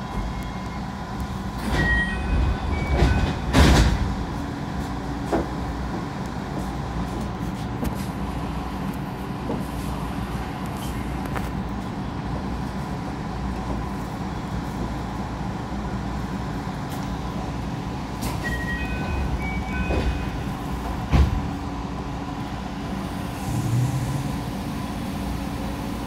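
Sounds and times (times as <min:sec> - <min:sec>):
train low rumble: 0:00.0 - 0:26.0.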